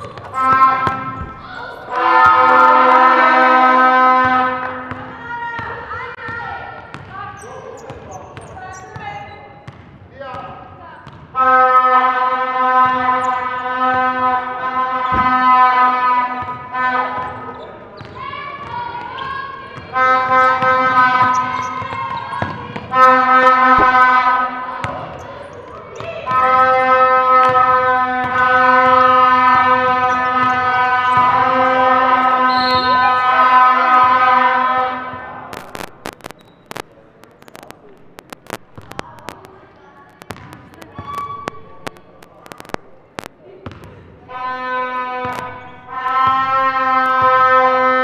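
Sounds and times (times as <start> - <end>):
ball bouncing on hardwood court: 0.0 - 1.9, 4.2 - 7.2, 7.9 - 11.3, 23.8 - 24.1, 40.2 - 42.9, 43.6 - 44.0
horn long steady note: 0.3 - 4.9, 11.4 - 17.2, 22.9 - 24.8, 26.4 - 36.8, 44.3 - 48.0
electronic buzzer tone: 35.6 - 39.5, 40.2 - 43.3.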